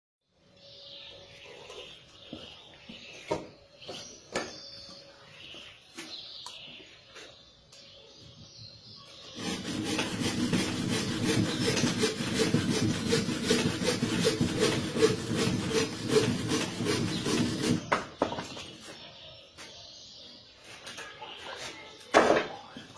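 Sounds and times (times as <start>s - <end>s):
handsaw cutting wood: 9.4s - 18.0s.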